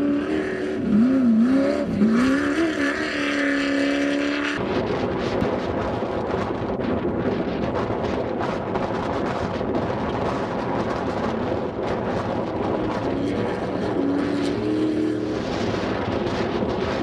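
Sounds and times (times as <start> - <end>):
race buggy engine revving: 0.0 - 4.7, 9.7 - 17.0.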